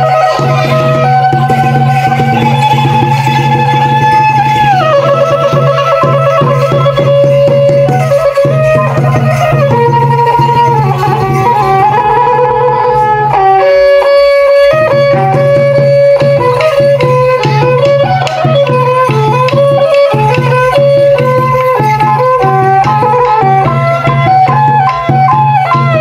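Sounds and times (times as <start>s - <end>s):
reed wind instrument melody: 0.0s - 26.0s
steady drumming: 0.0s - 26.0s
struck percussion: 0.0s - 26.0s.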